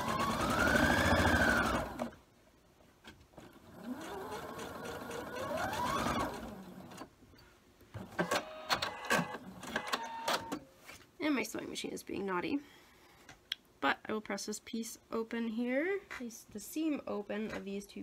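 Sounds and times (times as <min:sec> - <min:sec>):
sewing machine motor running: 0:00.0 - 0:02.1, 0:03.7 - 0:07.0.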